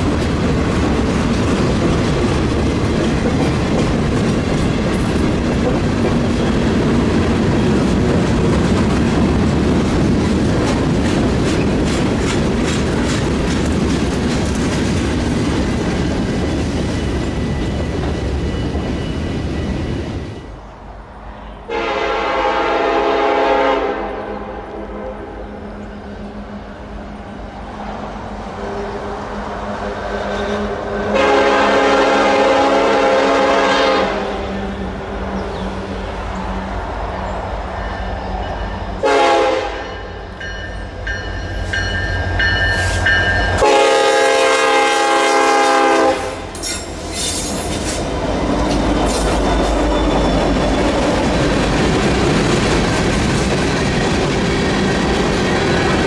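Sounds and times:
train wheels clattering on rails: 0.0s - 20.5s, 40.2s - 56.0s
diesel locomotive drone: 0.0s - 56.0s
locomotive air horn blasts: 21.7s - 25.4s, 30.5s - 34.6s, 39.0s - 40.0s, 43.6s - 46.6s.

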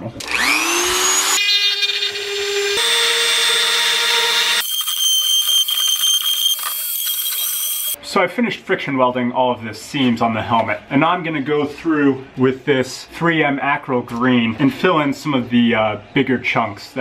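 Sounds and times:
rotary tool whining: 0.2s - 8.0s.

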